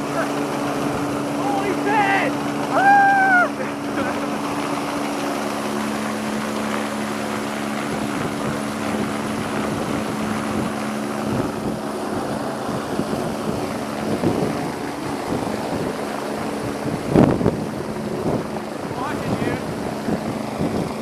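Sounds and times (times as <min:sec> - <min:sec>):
helicopter hovering: 0:00.0 - 0:21.0
wind buffeting microphone: 0:00.0 - 0:21.0.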